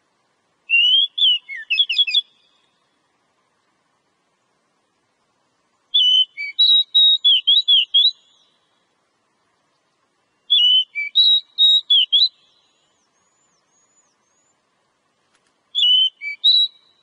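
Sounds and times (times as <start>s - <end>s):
songbird whistling: 0.7s - 2.7s, 5.9s - 8.6s, 10.3s - 14.6s, 15.7s - 17.0s.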